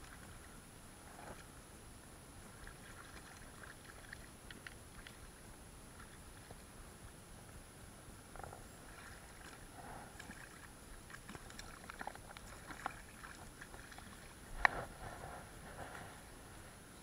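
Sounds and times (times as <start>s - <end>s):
small waves lapping: 2.3s - 7.2s, 8.3s - 16.7s
fish thrashing and splashing: 8.9s - 14.4s.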